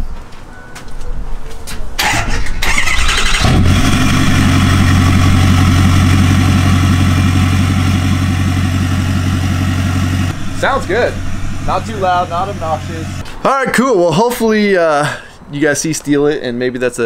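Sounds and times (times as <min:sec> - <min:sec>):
engine starter cranking: 0:02.0 - 0:05.2
truck engine idling: 0:02.0 - 0:13.2.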